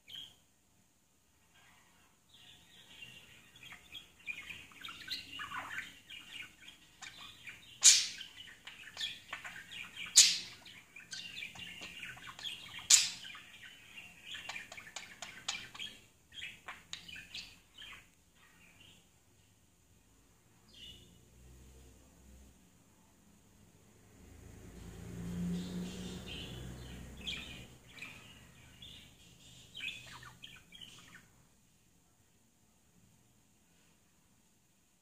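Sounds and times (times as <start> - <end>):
sharp bird chirps: 2.5 - 19.0
budgerigar chattering and warbling: 7.0 - 13.2.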